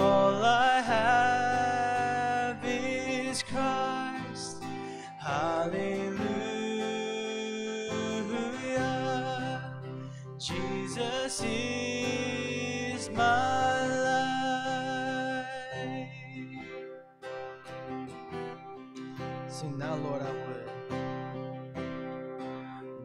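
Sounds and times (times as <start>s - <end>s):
man singing: 0.0s - 16.9s, 19.2s - 21.5s
strummed acoustic guitar: 0.0s - 23.0s.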